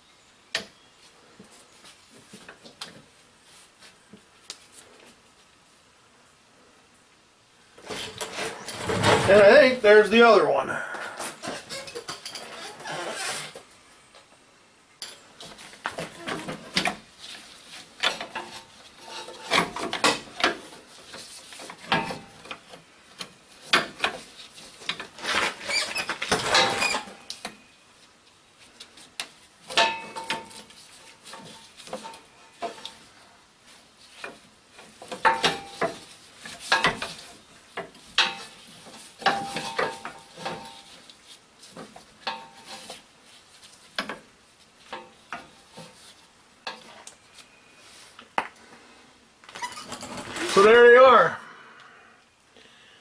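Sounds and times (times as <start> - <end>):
metal lines clinking and scraping: 11.2 - 13.6, 15.0 - 27.7, 28.6 - 48.2.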